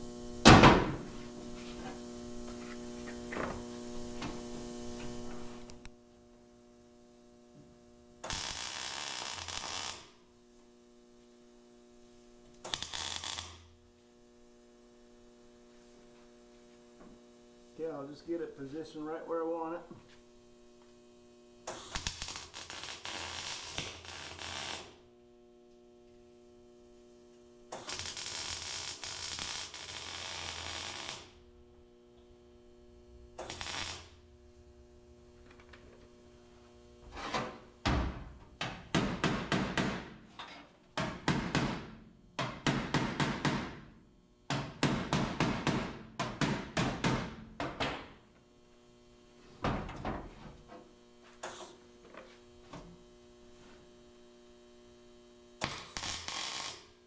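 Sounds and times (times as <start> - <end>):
electrical hum: 0.0 - 40.3
welder crackling: 1.2 - 6.0, 8.2 - 10.2, 12.5 - 15.0, 21.6 - 25.2, 27.7 - 37.8, 55.6 - 57.0.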